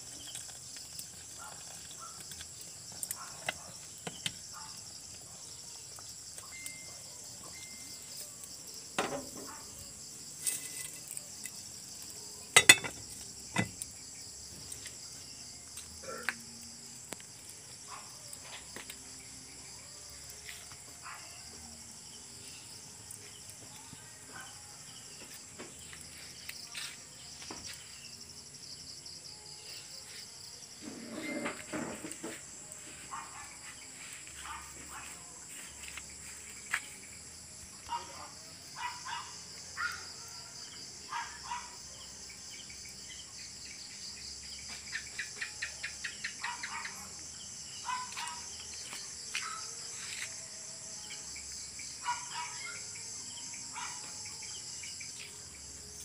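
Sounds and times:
night insects chirring: 0.0s - 56.0s
ladle and lid clinking on pot: 12.6s - 13.0s.

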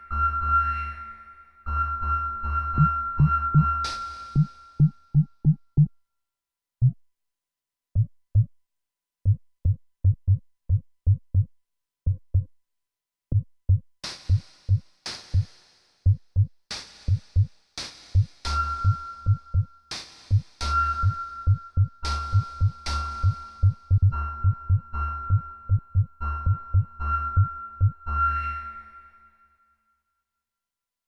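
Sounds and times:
sharp hissy drum hits: 14.1s - 15.8s, 16.7s - 18.6s.

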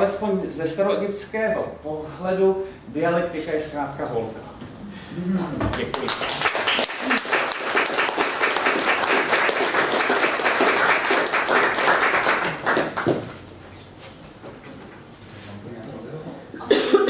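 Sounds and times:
audience applauding: 5.7s - 13.5s.

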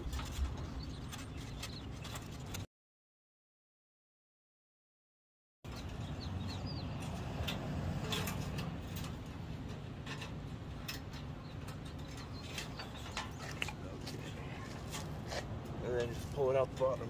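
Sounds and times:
bird chirps: 0.0s - 2.6s, 5.7s - 7.2s, 11.4s - 13.7s
low outdoor rumble: 0.0s - 2.6s, 5.7s - 17.0s
wire clicks and rustles: 7.0s - 16.9s.

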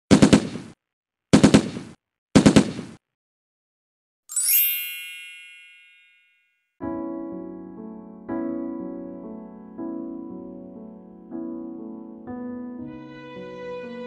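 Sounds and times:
bright twinkling chime: 4.3s - 6.7s.

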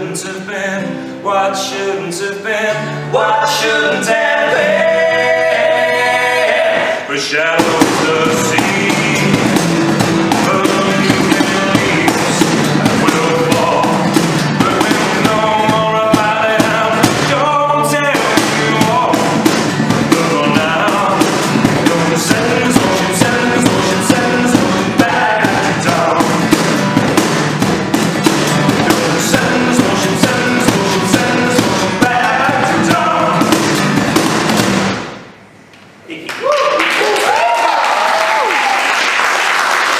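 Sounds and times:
person singing: 0.0s - 26.7s, 28.7s - 34.0s
acoustic guitar strumming: 0.0s - 35.7s
cajon beat: 4.4s - 35.4s.

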